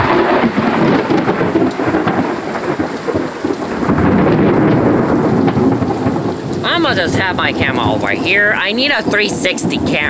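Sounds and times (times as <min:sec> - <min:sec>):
rain hissing: 0:00.0 - 0:10.0
rolling thunder: 0:00.0 - 0:10.0.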